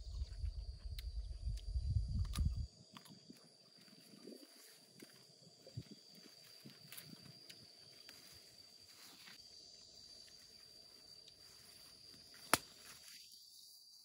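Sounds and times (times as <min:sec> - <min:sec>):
high-pitched insect drone: 0:03.3 - 0:14.0.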